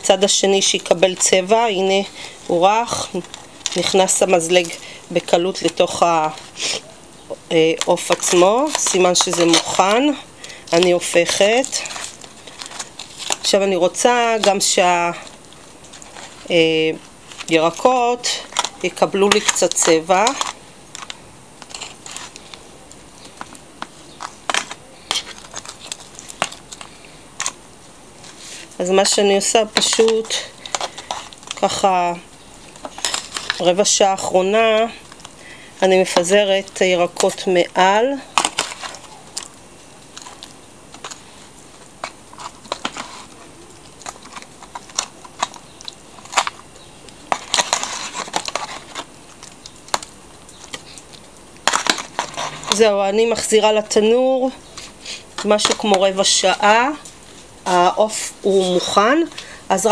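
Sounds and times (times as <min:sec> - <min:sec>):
foil crinkling: 0:00.0 - 0:57.9
cutlery scraping foil tray: 0:07.5 - 0:15.3, 0:17.3 - 0:22.6, 0:23.4 - 0:27.5, 0:28.2 - 0:32.2, 0:32.8 - 0:35.0, 0:42.0 - 0:43.4, 0:47.3 - 0:49.1, 0:51.6 - 0:53.6.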